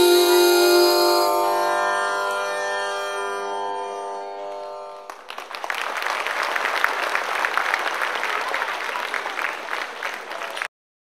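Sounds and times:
held music notes: 0:00.0 - 0:05.5
audience applause: 0:05.1 - 0:10.7.

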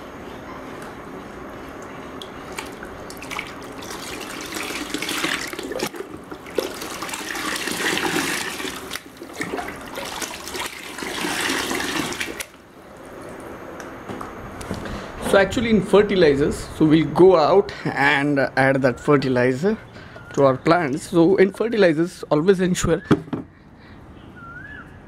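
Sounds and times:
water sloshing in bucket: 0:02.2 - 0:12.6
water pouring from mug: 0:02.6 - 0:12.5.

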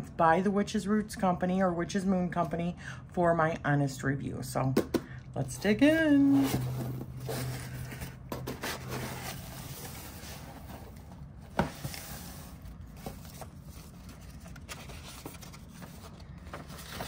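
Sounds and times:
cardboard and paper rustling: 0:05.9 - 0:17.0.

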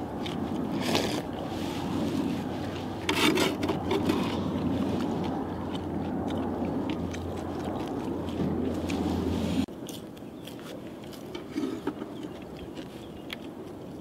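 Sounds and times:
low rumble: 0:00.0 - 0:09.7
biting and chewing food: 0:00.0 - 0:14.0
slurping porridge: 0:11.3 - 0:12.2.

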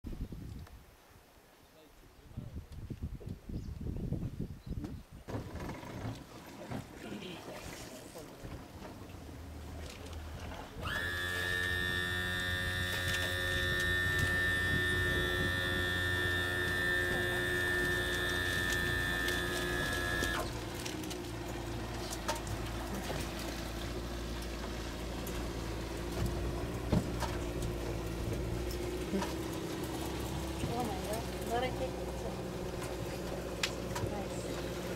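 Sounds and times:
low hum: 0:09.3 - 0:34.9
small motor whining: 0:10.8 - 0:24.0.

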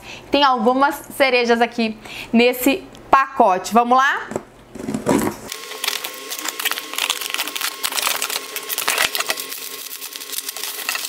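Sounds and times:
crackling of tape and plastic wrap: 0:05.5 - 0:11.0.

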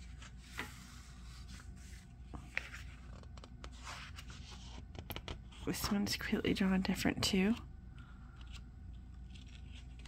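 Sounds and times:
paper pages rustling: 0:00.0 - 0:05.6, 0:08.4 - 0:10.0.

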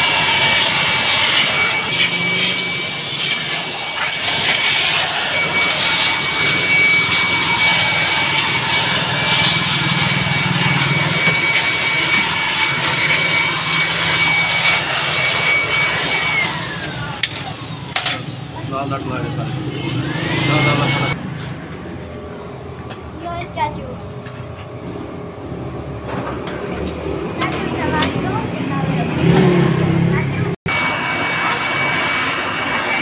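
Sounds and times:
electric blower whining: 0:00.0 - 0:21.2.

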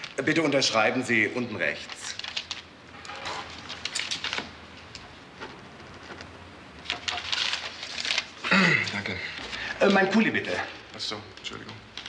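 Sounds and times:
paper rustling: 0:01.6 - 0:04.5, 0:05.3 - 0:12.0.

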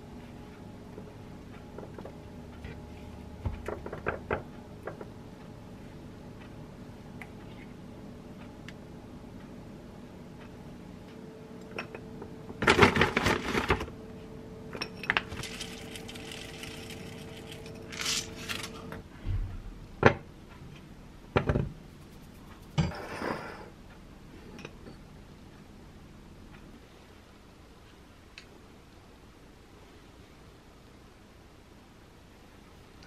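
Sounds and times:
seeds pattering into glass bowl: 0:15.1 - 0:18.7.

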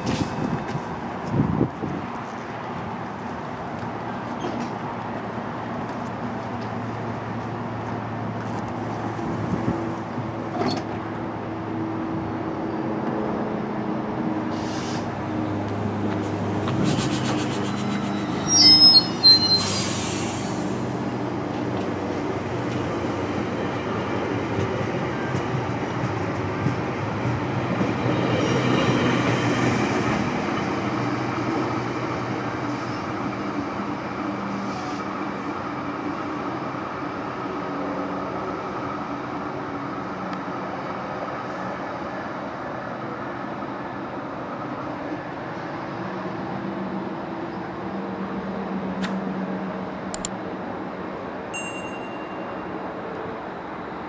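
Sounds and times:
diesel locomotive humming: 0:00.0 - 0:54.0
hissing and high squeaks: 0:17.0 - 0:20.4.

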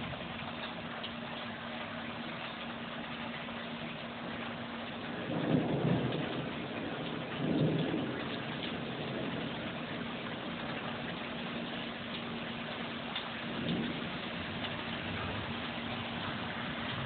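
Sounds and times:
steady rain falling: 0:00.0 - 0:17.0
low rumbles of thunder: 0:03.8 - 0:17.0.

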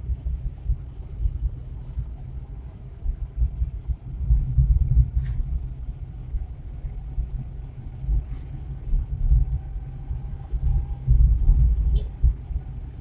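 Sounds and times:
pickup engine and road rumble: 0:00.0 - 0:13.0.

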